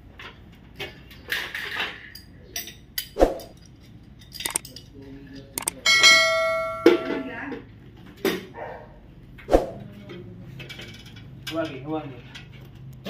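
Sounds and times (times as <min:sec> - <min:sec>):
tools knocking against metal: 0:02.6 - 0:04.7
ringing metallic clang: 0:05.8 - 0:07.4.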